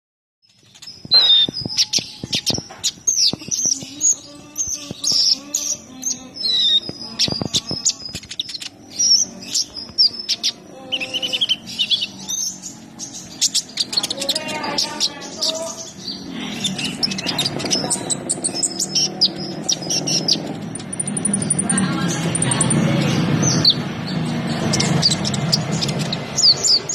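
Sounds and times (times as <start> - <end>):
sharp bird chips: 0.4 - 26.9
sunbird twittering song: 0.4 - 26.9.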